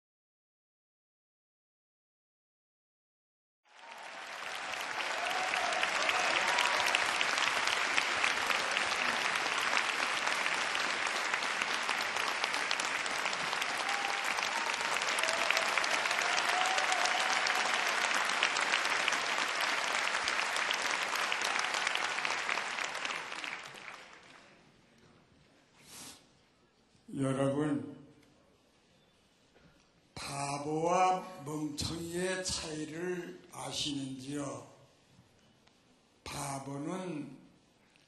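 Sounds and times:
large audience applauding: 0:03.7 - 0:24.6.

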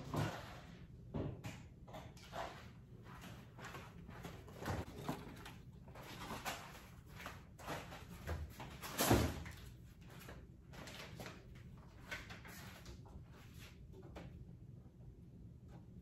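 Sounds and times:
kitchen items knocking and clattering: 0:04.4 - 0:09.6.

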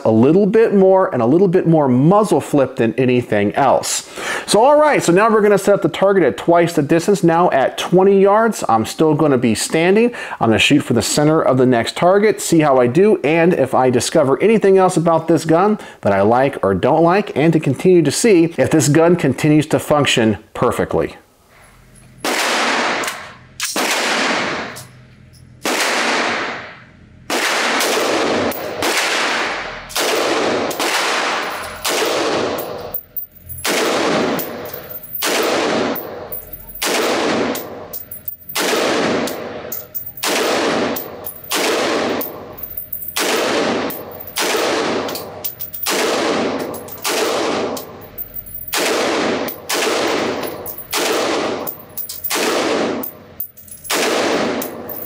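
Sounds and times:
rifle shots echoing indoors: 0:22.2 - 0:24.8, 0:25.6 - 0:32.6, 0:33.6 - 0:36.2, 0:36.8 - 0:37.8, 0:38.5 - 0:39.6, 0:40.2 - 0:42.4, 0:43.2 - 0:45.1, 0:45.8 - 0:47.8, 0:48.6 - 0:53.1, 0:53.9 - 0:55.0.

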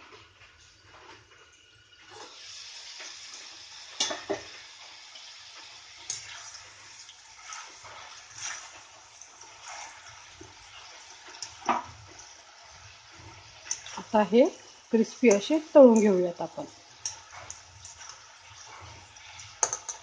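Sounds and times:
peas sizzling in hot oil: 0:00.0 - 0:20.0
spatula stirring: 0:06.0 - 0:20.0.

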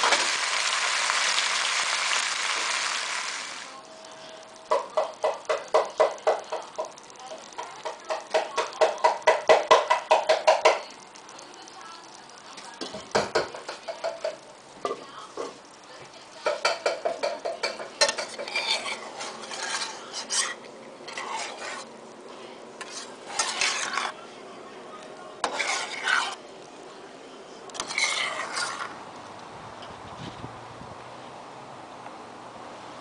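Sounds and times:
metal spoon scraping saucepan: 0:16.5 - 0:21.9, 0:22.8 - 0:24.2, 0:25.4 - 0:26.4, 0:27.7 - 0:29.0.

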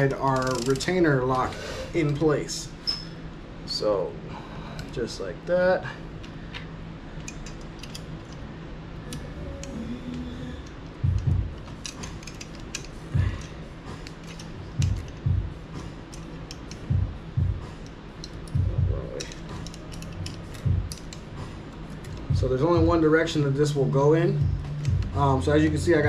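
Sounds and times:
dull low thumps: 0:10.2 - 0:11.6, 0:14.7 - 0:15.8, 0:16.9 - 0:17.7, 0:18.6 - 0:19.1, 0:20.6 - 0:21.5, 0:22.2 - 0:23.0, 0:24.4 - 0:26.0.

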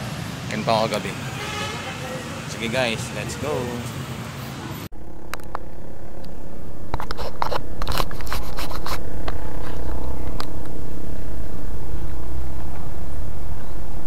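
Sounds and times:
wind rumbling on microphone: 0:04.9 - 0:14.0.

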